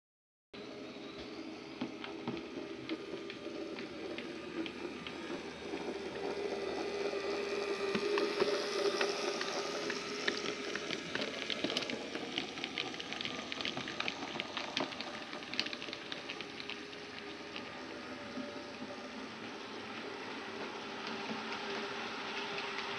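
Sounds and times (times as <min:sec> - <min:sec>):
small electric motor whining: 0:00.6 - 0:14.8
wheels clicking over rail joints: 0:01.0 - 0:22.9.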